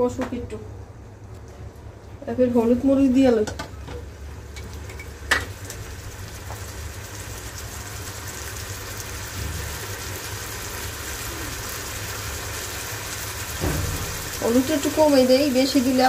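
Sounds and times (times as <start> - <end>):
paste sizzling and bubbling in oil: 4.3 - 16.0
sharp knock: 13.6 - 14.2.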